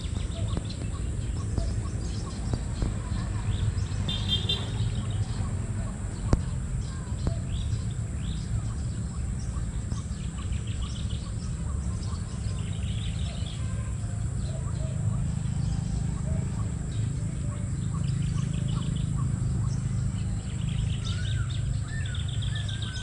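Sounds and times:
small birds chirping: 0.0s - 23.0s.

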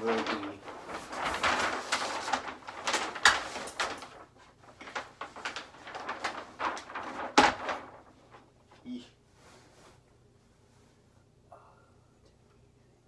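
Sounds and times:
paper map rustling and crackling: 0.0s - 10.0s.

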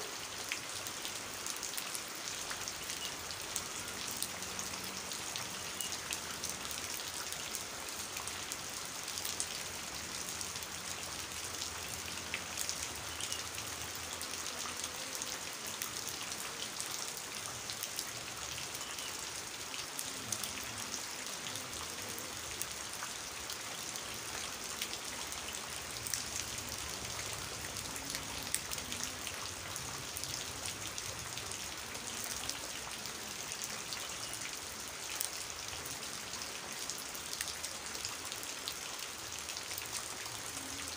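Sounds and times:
heavy rain on water and plants: 0.0s - 40.9s.

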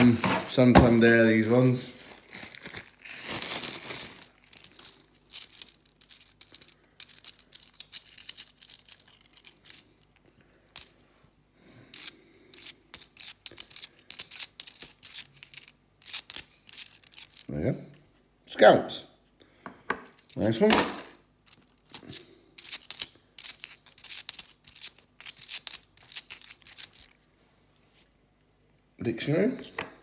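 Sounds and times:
coins clinking: 3.2s - 10.0s, 10.7s - 10.9s, 12.0s - 17.5s, 20.1s - 27.2s.

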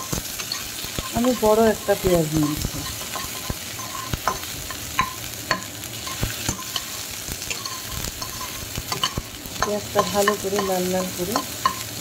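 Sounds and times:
onions sizzling in hot oil: 0.0s - 12.0s
metal spatula scraping pan: 2.4s - 12.0s.

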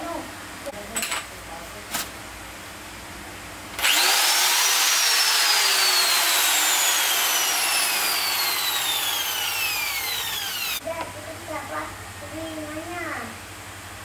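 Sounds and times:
electric drill boring into wall: 3.8s - 10.8s.

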